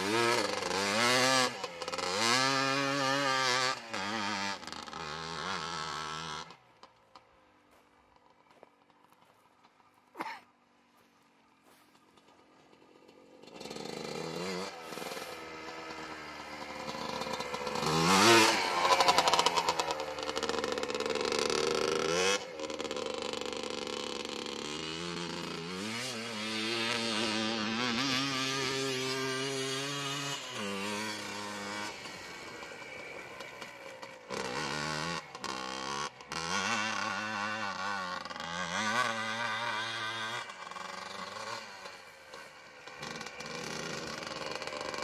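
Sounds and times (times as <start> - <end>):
quad engine revving: 0.0 - 7.2, 12.1 - 45.0
tyres on gravel: 6.8 - 13.8.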